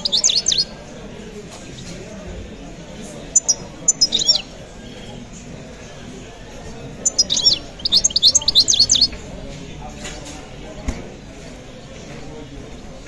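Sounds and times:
songbird chirping and twittering: 0.0 - 0.9, 3.2 - 6.0, 6.9 - 9.3.

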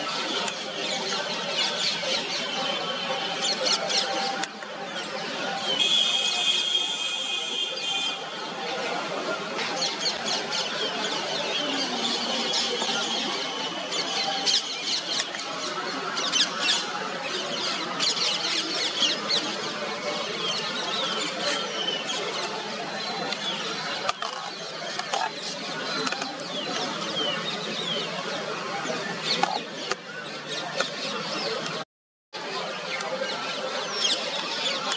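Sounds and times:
birds chirping: 0.2 - 31.8.

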